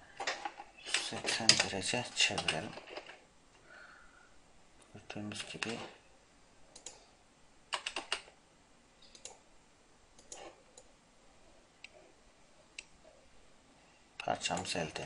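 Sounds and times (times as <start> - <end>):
computer mouse clicks: 6.7 - 7.0, 9.0 - 9.4, 10.2 - 10.9.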